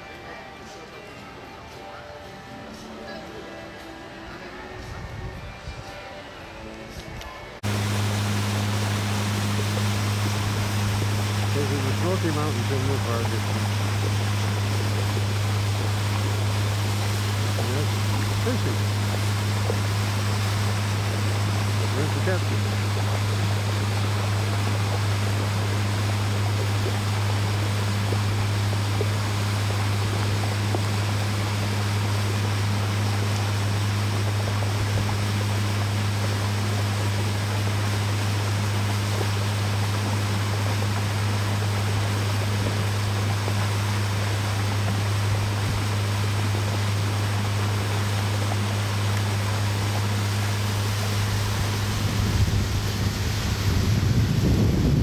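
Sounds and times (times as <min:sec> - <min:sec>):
outboard motor droning: 0:00.0 - 0:55.0
wind buffeting microphone: 0:04.8 - 0:05.9, 0:51.0 - 0:55.0
rushing water: 0:07.6 - 0:55.0.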